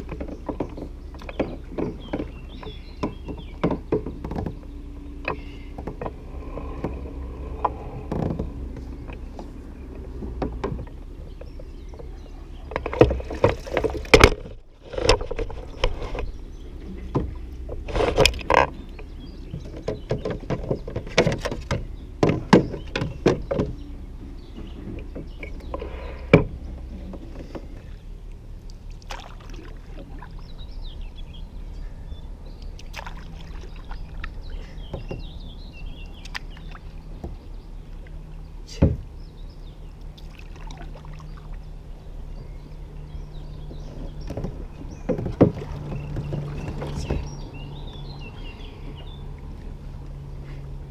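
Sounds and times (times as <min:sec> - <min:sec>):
knocks against kayak hull: 0:44.2 - 0:47.4.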